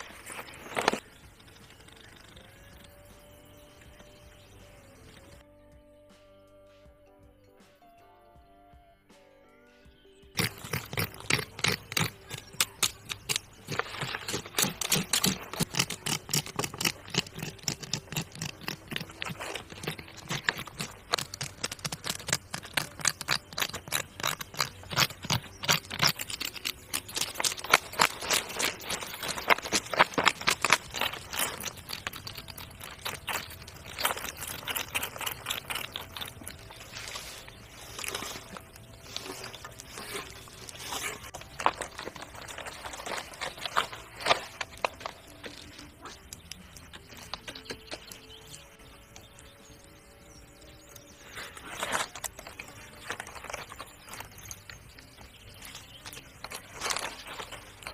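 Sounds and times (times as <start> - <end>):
scraping strokes on hide: 10.4 - 44.6.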